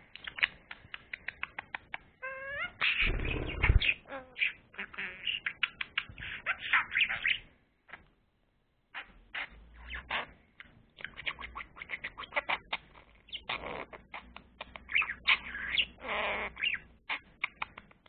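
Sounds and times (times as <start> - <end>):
budgerigar chirping and clicking: 0.1 - 8.1, 8.9 - 18.0
budgerigar scratchy warbles: 2.8 - 4.6.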